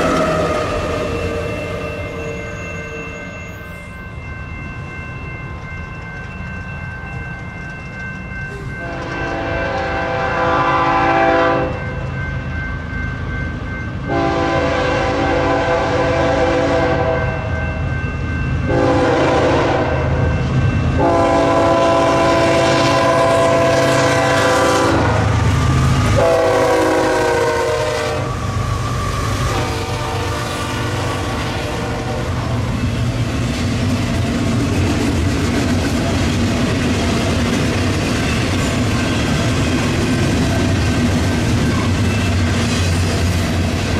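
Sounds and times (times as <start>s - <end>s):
crossing warning bells ringing: 0.0s - 43.9s
locomotive air horn blasts: 8.8s - 11.8s, 14.1s - 17.4s, 18.7s - 20.1s, 21.0s - 28.4s, 29.5s - 32.5s.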